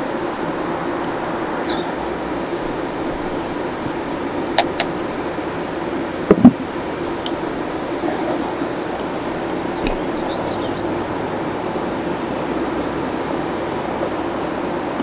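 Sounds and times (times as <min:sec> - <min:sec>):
steady low hum: 0:00.0 - 0:15.0
sharp clicks: 0:04.5 - 0:05.0.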